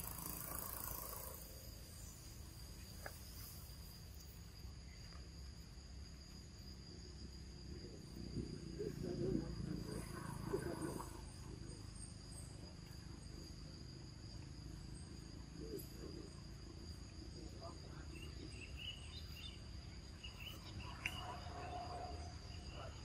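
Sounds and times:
faint chirps: 0.0 - 6.4, 7.2 - 23.0
high-pitched insect tones: 0.0 - 23.0.

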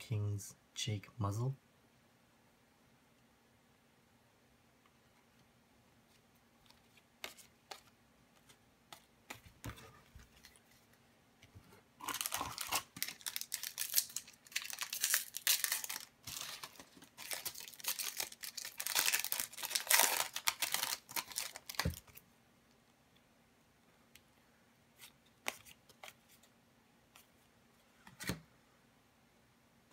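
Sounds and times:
foil wrapper tearing and crinkling: 12.0 - 22.1.

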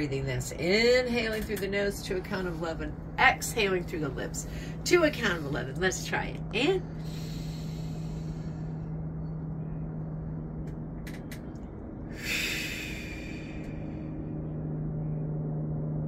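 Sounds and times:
steady low hum: 0.0 - 16.0
woman exhaling through lips: 12.1 - 13.8.

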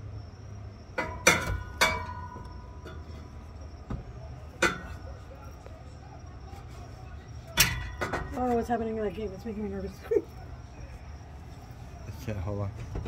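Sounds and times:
metal exhaust pipes clinking: 0.8 - 5.5, 6.4 - 9.5.

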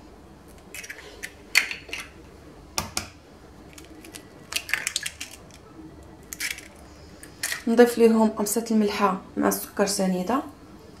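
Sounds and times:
eggshell cracking on glass bowl: 3.7 - 5.6, 6.3 - 6.8.

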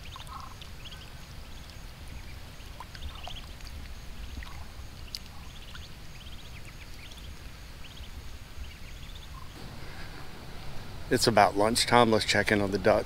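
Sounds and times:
ducklings dabbling with faint clicking: 0.0 - 11.1
low rumble of water: 9.6 - 13.0.

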